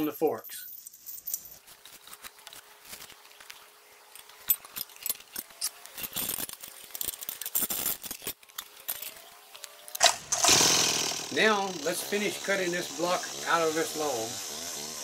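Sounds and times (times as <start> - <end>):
steel chain clinking and rattling: 0.3 - 2.6, 4.1 - 9.3.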